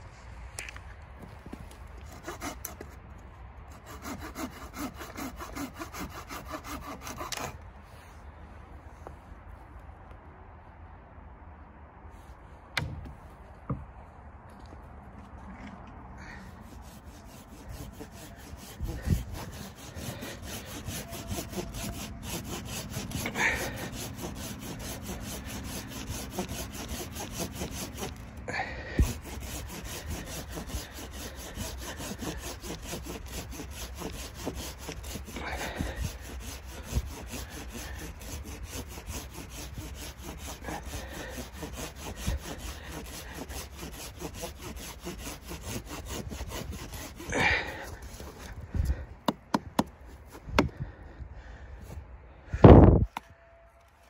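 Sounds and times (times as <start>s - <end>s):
hand saw cutting log: 2.0s - 3.0s, 3.7s - 7.6s, 16.2s - 50.9s.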